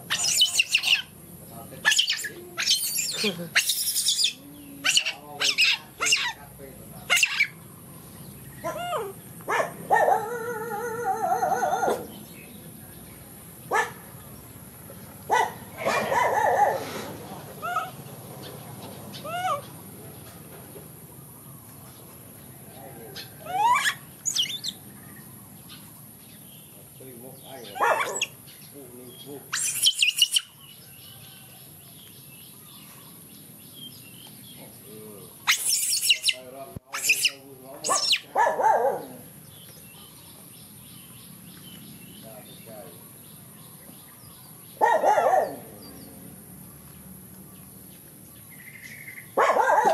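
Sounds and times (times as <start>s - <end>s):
animal high wavering cries: 0.0s - 1.1s, 1.8s - 6.4s, 7.1s - 7.6s, 8.6s - 9.2s, 10.1s - 12.1s, 19.2s - 19.7s, 23.4s - 24.8s, 29.5s - 30.6s, 35.4s - 38.4s
shrill high-pitched chirping: 0.1s - 1.1s, 1.9s - 6.4s, 23.5s - 24.8s, 29.5s - 30.6s, 35.4s - 38.3s.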